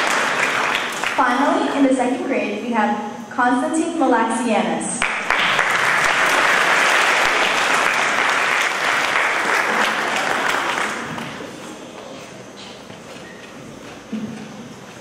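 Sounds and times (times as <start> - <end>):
audience applauding: 0.0 - 1.2, 5.0 - 11.6.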